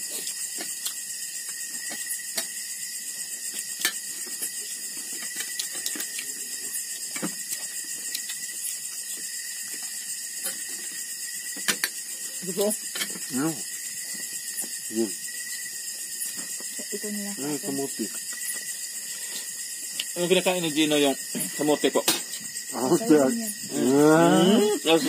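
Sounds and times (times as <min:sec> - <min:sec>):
crickets chirring: 0:00.0 - 0:25.0.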